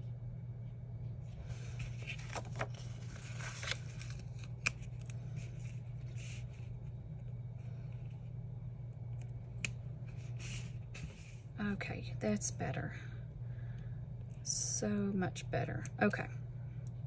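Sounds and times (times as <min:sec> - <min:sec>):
steady low hum: 0:00.0 - 0:17.0
paper pages rustling: 0:01.3 - 0:06.9.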